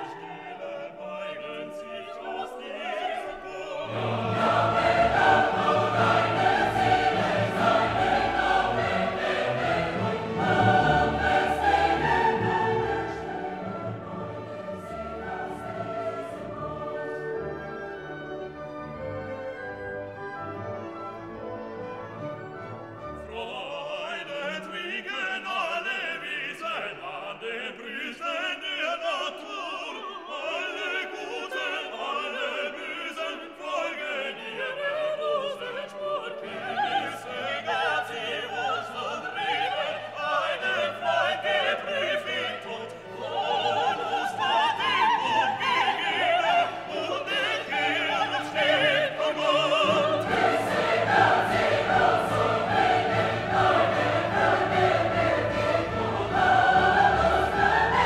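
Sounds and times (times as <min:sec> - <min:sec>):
operatic singing: 0:00.0 - 0:18.9, 0:23.1 - 0:58.0
orchestra playing: 0:03.5 - 0:24.4, 0:41.9 - 0:58.0.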